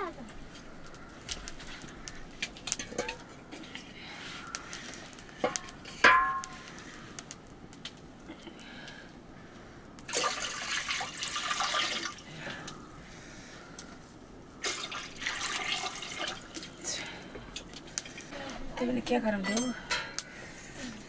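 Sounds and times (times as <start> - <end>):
water splashing and pouring: 10.1 - 12.3, 14.6 - 16.8.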